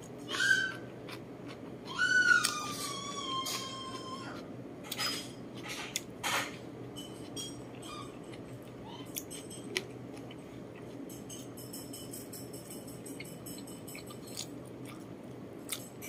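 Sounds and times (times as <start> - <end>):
chewing and mouth smacks: 13.2 - 15.1.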